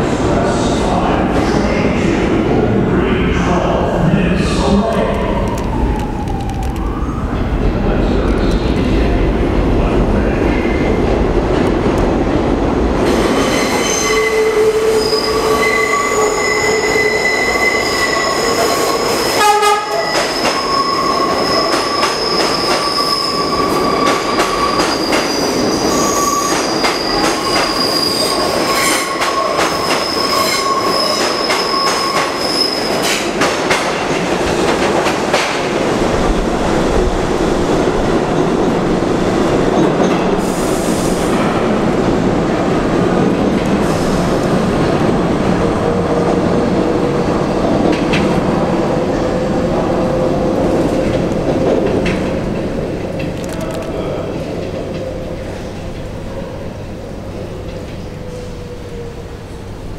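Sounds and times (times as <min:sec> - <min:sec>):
train rumbling and clattering: 0:00.0 - 0:59.9
train wheels squealing: 0:13.4 - 0:19.1, 0:19.9 - 0:33.1
train horn toot: 0:19.4 - 0:20.1.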